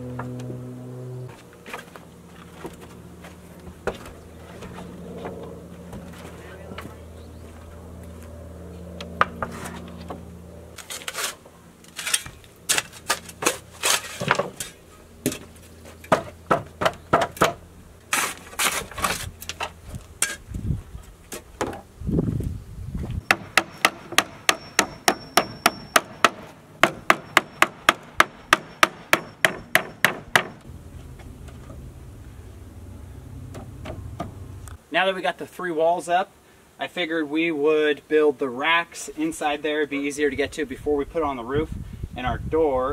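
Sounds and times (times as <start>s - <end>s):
hammer driving nails into boards: 23.3s - 30.6s.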